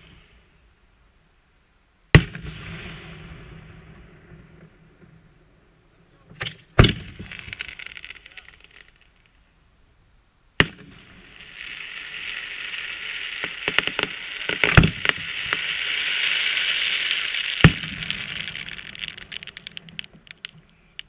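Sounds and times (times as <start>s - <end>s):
crackling hiss of firework stars: 0.0s - 21.0s
firework pops: 2.1s - 3.0s, 6.3s - 9.1s, 10.6s - 21.0s
firework bangs: 2.1s - 5.4s, 6.3s - 9.2s, 10.6s - 21.0s.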